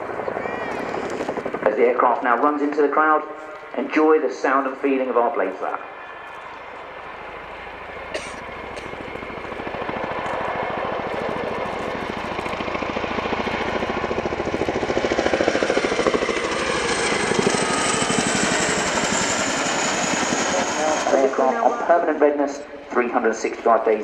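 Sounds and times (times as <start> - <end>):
high turbine whine: 0.0 - 24.0
helicopter rotor blade slap: 8.1 - 22.2.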